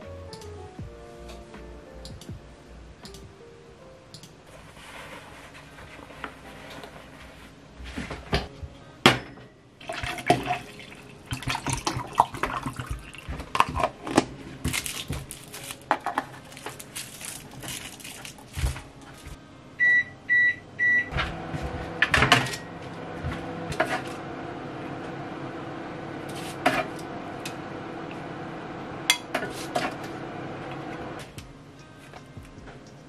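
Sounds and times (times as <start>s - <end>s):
liquid pouring into cup: 9.8s - 13.3s
plastic jug and cup clatter: 9.8s - 18.8s
appliance electronic beeps: 19.8s - 21.2s.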